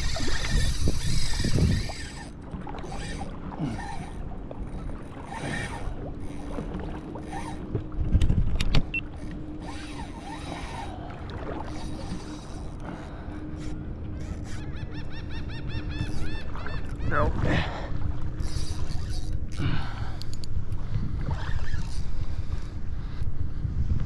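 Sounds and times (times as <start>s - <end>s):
wind noise: 0.0s - 2.2s, 20.7s - 24.0s
water lapping: 0.0s - 23.5s.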